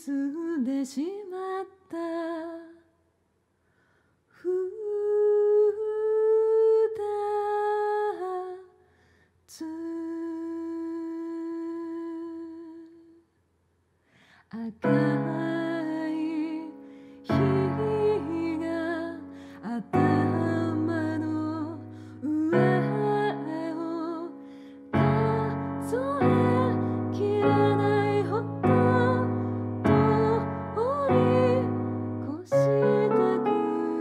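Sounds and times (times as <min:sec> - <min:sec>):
person humming held notes: 0:19.8 - 0:34.0
piano sustained chords: 0:20.0 - 0:34.0.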